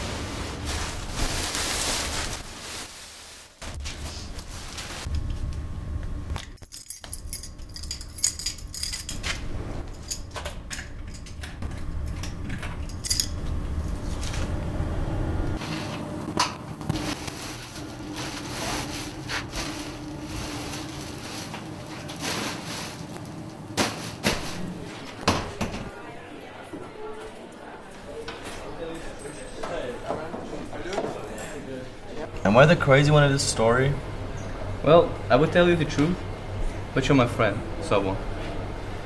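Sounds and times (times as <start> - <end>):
objects clicking and clinking: 6.4 - 13.4.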